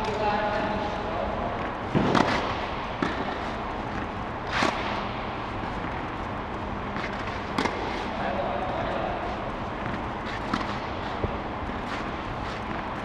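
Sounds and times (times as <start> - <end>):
steady background noise: 0.0 - 13.0
tennis balls struck by rackets: 0.0 - 13.0
tennis ball bouncing: 1.5 - 8.1, 9.7 - 13.0.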